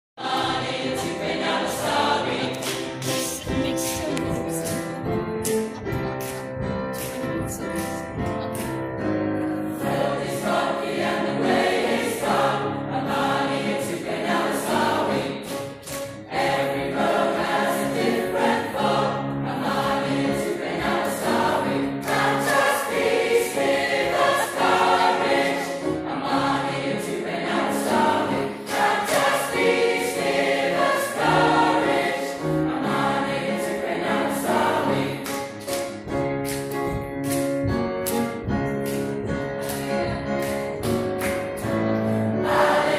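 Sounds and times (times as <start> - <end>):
mixed choir singing in harmony: 0.2 - 3.4, 9.6 - 35.8, 39.5 - 42.9.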